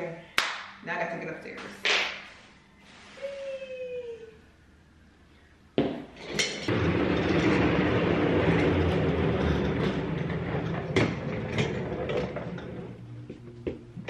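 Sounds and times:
chair scraping across hard floor: 6.2s - 13.8s.

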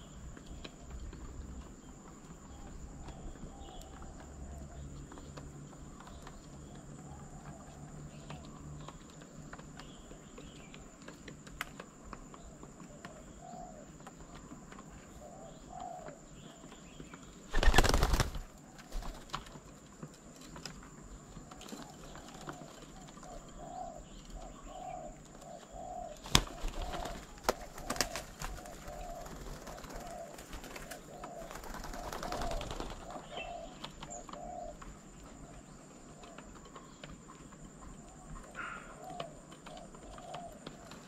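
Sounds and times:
dove wings clattering: 0.0s - 24.4s, 25.0s - 41.0s
small birds chirping: 0.0s - 41.0s
dove cooing: 12.4s - 16.6s, 21.5s - 36.9s, 38.0s - 41.0s.

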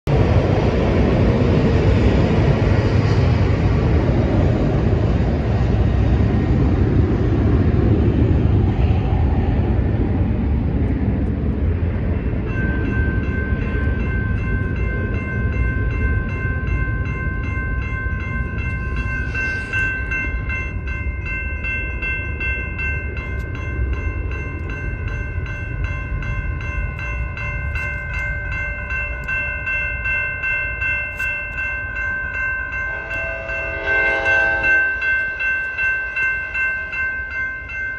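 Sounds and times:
low rumble: 0.1s - 30.1s
railroad crossing bells ringing: 1.3s - 37.9s.

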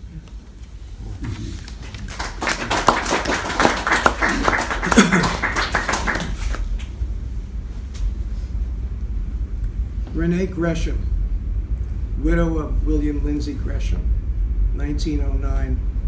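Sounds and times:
person speaking: 0.9s - 2.2s
small audience applauding: 1.3s - 7.0s.

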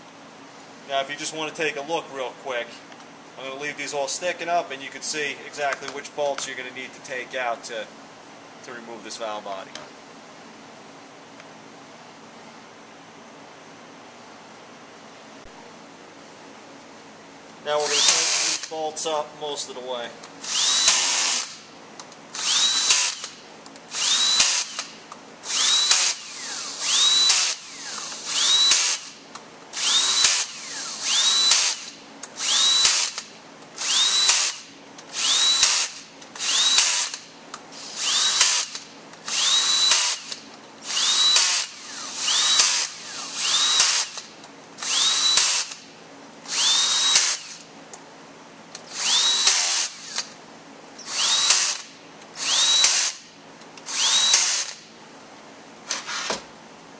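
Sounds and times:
drill motor whine: 17.8s - 18.7s, 20.4s - 21.6s, 22.4s - 29.2s, 29.8s - 37.2s, 37.8s - 45.8s, 46.5s - 47.6s, 48.9s - 50.3s, 51.0s - 53.2s, 53.9s - 54.8s
cordless drill driving bolts: 17.8s - 18.8s, 20.4s - 21.6s, 22.3s - 29.2s, 29.8s - 45.9s, 46.5s - 47.7s, 48.8s - 50.4s, 51.0s - 54.9s, 55.9s - 56.4s.

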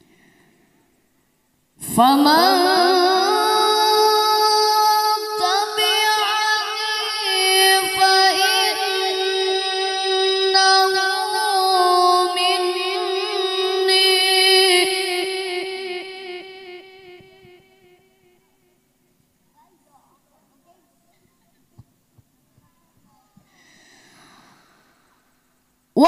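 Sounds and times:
boy reciting melodically into microphone: 1.8s - 18.0s.

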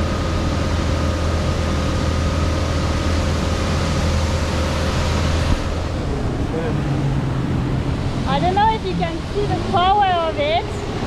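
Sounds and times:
outboard motor running: 0.0s - 11.0s
water rushing: 0.0s - 11.0s
wind: 0.0s - 11.0s.

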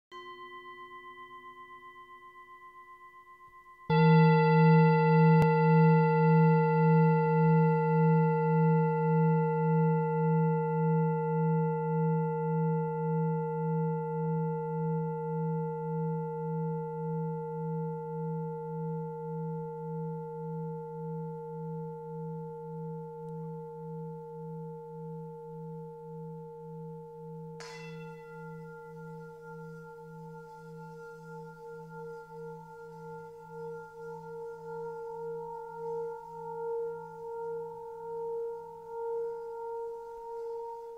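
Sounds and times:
brighter bell ringing: 0.1s - 8.5s, 27.6s - 33.9s
struck bell-like tone ringing: 0.1s - 40.9s.

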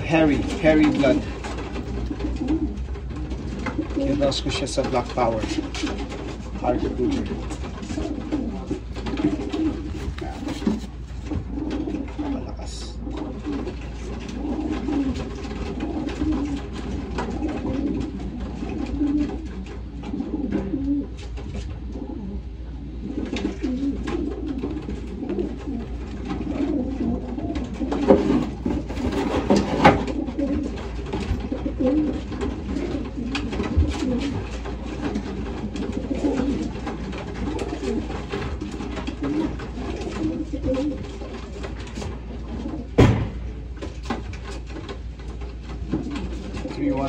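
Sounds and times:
pigeons cooing: 0.0s - 47.0s
scuffling noise: 7.9s - 11.6s.

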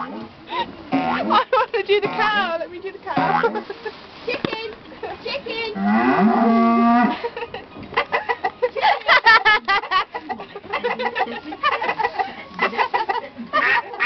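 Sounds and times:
cow mooing: 5.8s - 7.2s
chickens clucking: 7.6s - 8.6s.

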